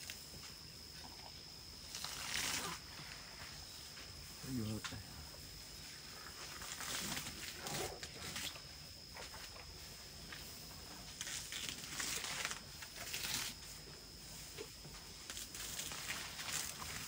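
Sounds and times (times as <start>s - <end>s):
elephant ripping and chewing grass: 1.8s - 3.6s, 6.0s - 17.0s.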